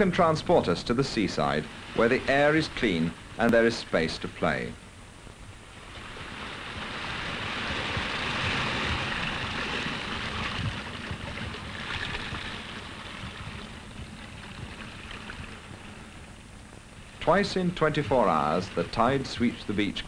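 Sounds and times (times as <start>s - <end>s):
surf breaking on a beach: 0.0s - 4.7s, 5.7s - 16.2s.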